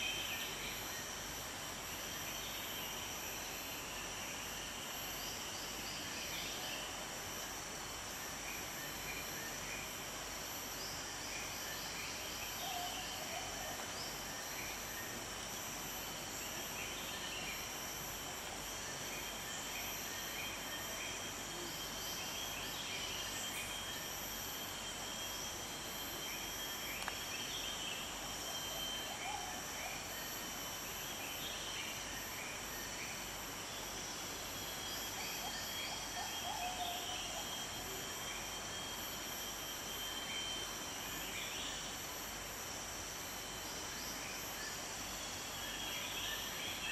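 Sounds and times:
insect chirps: 0.0s - 46.9s
insects trilling: 0.0s - 46.9s.

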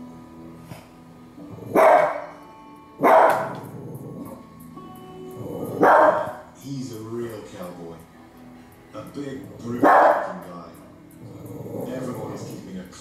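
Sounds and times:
dog barking: 1.7s - 2.4s, 3.0s - 3.7s, 5.7s - 6.4s, 9.8s - 10.4s.

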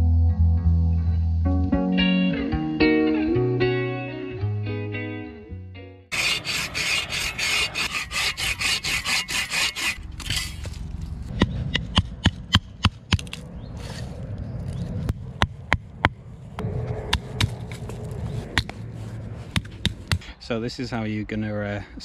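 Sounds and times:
rasping strokes on wood: 6.1s - 10.6s.

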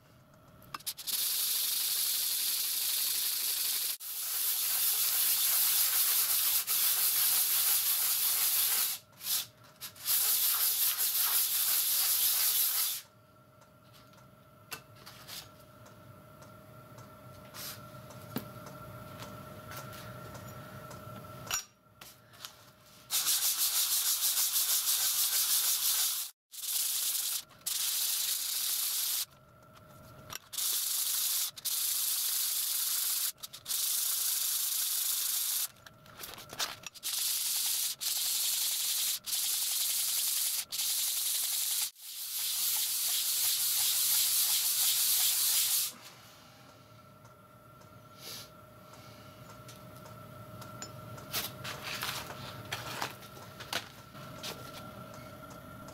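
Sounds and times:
metal scraping on sandpaper: 23.1s - 29.3s.

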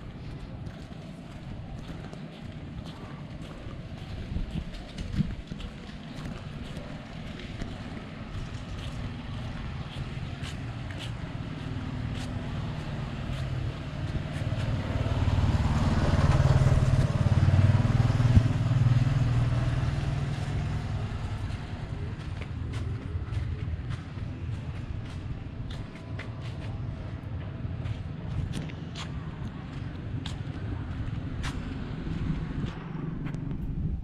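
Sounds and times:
motor engine passing by: 6.2s - 28.1s.

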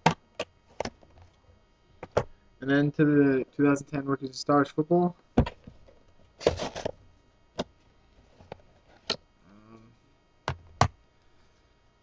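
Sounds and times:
cards rustling: 6.4s - 7.0s.

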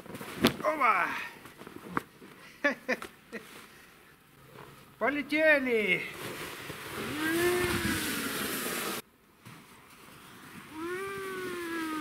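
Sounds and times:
snow tube scraping over snow: 6.1s - 9.0s
person whooping: 7.1s - 8.1s, 10.7s - 12.0s.

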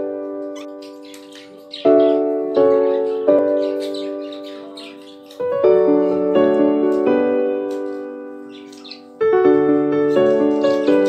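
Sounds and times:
slow piano chords: 0.0s - 11.0s
budgerigar chirps: 0.6s - 5.5s, 8.5s - 9.1s.

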